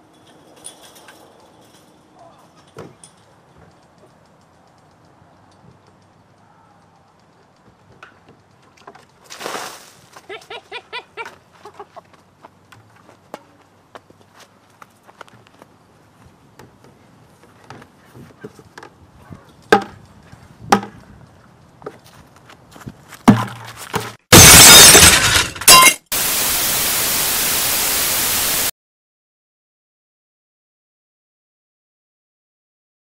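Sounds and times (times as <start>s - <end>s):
light footsteps: 11.3s - 18.8s
plastic pail crashing: 23.3s - 26.0s
steady loud hiss: 24.4s - 28.7s.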